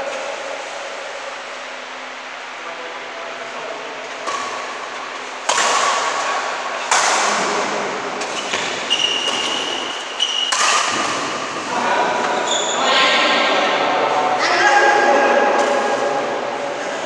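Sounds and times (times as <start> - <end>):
racket striking shuttlecock: 4.2 - 12.4
shoe squeaks: 8.3 - 10.6, 12.3 - 12.9.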